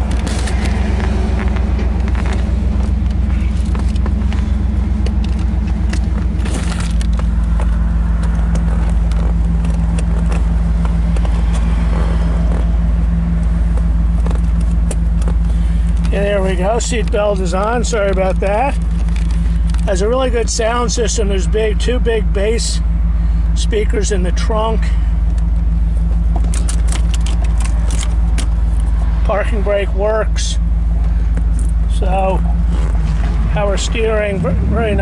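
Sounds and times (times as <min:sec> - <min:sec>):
seat belt clicking and rustling: 0:00.0 - 0:20.0, 0:25.2 - 0:29.2, 0:31.0 - 0:31.8, 0:32.4 - 0:33.5
car engine idling: 0:00.0 - 0:35.0.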